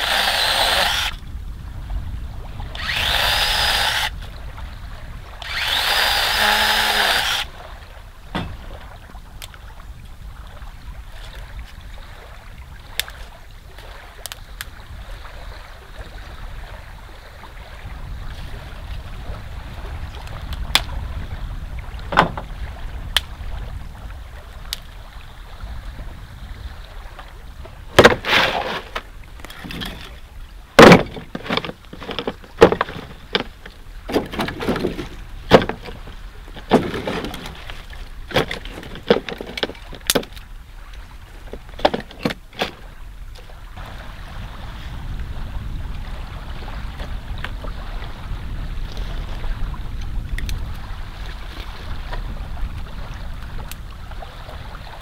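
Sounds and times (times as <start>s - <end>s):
wind rumbling on microphone: 0.0s - 55.0s
sharp cracks and crunches: 30.8s - 40.4s.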